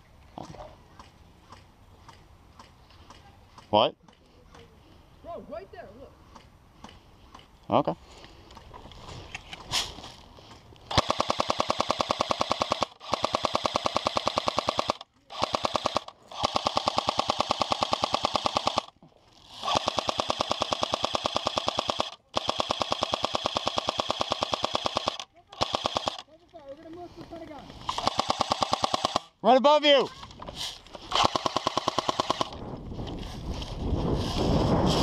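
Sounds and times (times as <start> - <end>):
airsoft machine gun full-auto bursts: 10.9 - 26.2, 27.9 - 29.4, 31.1 - 32.6.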